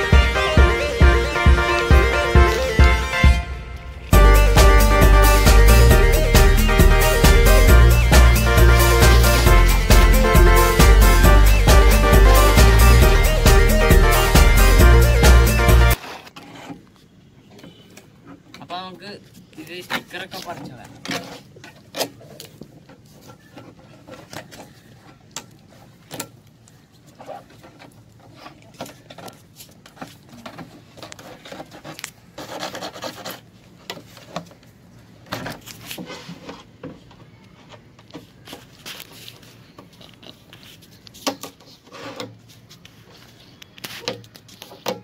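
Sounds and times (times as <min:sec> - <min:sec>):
pencil scraping on plastic bottle: 0:16.0 - 0:17.1, 0:27.1 - 0:34.5.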